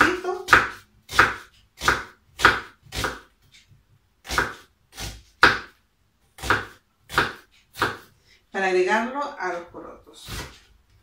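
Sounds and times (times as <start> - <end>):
knife chopping on wooden board: 0.0 - 3.3, 4.2 - 5.8, 6.4 - 8.1, 10.2 - 10.7.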